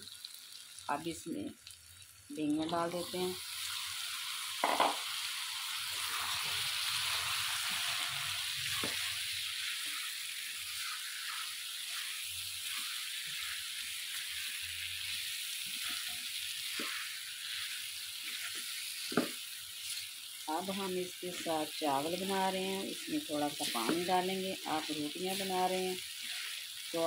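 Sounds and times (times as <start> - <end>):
vegetables sizzling in hot oil: 0.0 - 27.0
spatula scraping and knocking pan: 4.6 - 5.0, 8.7 - 10.0.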